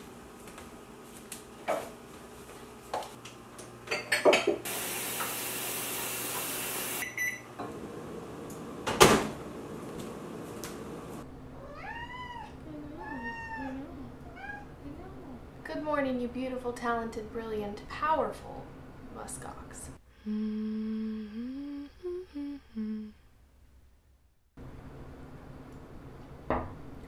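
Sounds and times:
microwave oven running: 0.0 - 11.5
microwave beeps: 6.6 - 7.6
cat meowing: 11.6 - 14.7.

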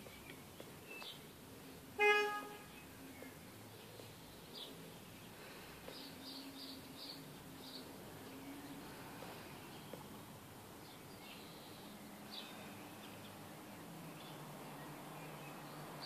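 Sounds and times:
vehicle horn toot: 2.0 - 2.7.

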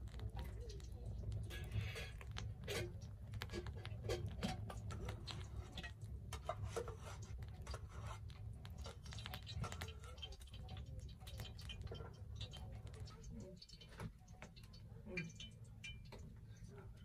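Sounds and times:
metal scraping on metal: 1.4 - 10.4.

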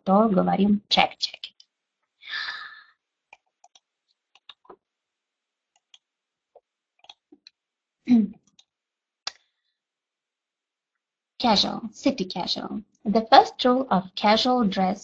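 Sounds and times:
faint small clicks: 3.3 - 4.8.

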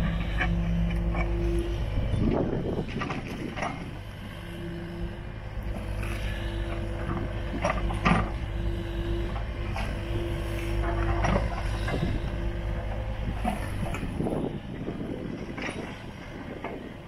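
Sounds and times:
excavator diesel engine under load: 0.0 - 17.0
hydraulic hum: 0.0 - 17.0.

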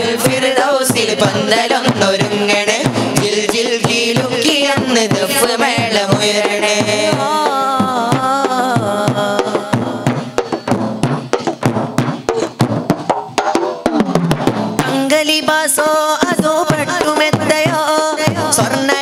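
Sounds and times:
boys singing: 0.0 - 10.7, 14.8 - 19.0
drum percussion: 0.0 - 19.0.

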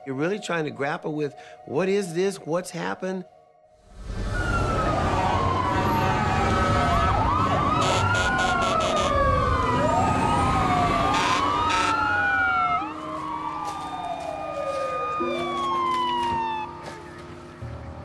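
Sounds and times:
fire engine sirens wailing: 3.9 - 17.9.

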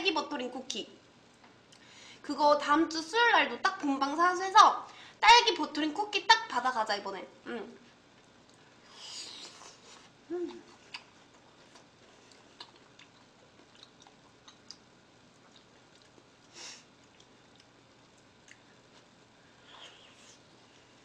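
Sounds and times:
close-miked chewing: 8.2 - 19.1
person humming mm: 10.3 - 10.7.

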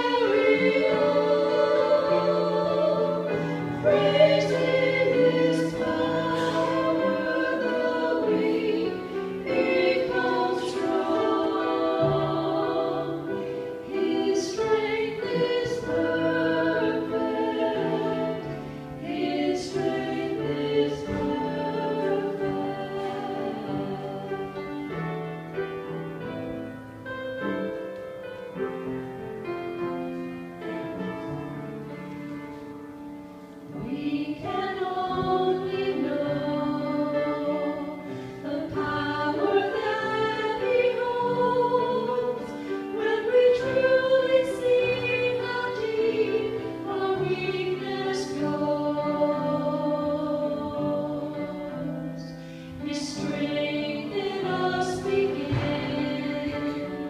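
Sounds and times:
women singing gospel: 0.0 - 24.8, 33.7 - 57.0
piano: 0.0 - 57.0.

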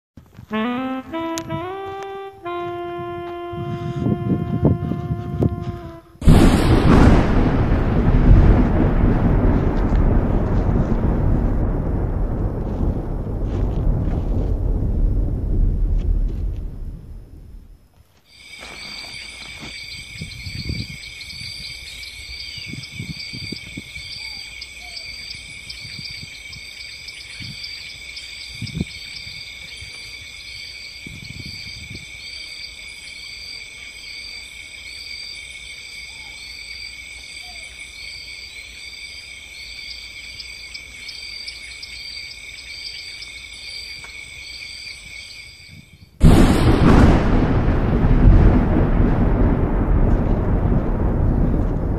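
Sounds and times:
dull low thumps: 3.0 - 17.8, 46.2 - 51.9
insect chorus trilling: 18.2 - 46.2.

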